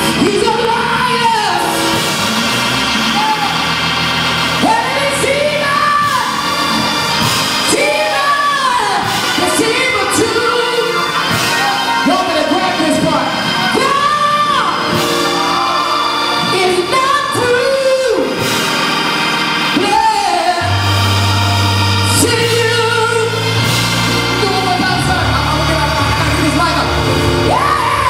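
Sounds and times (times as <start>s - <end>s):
organ chords: 0.0s - 28.0s.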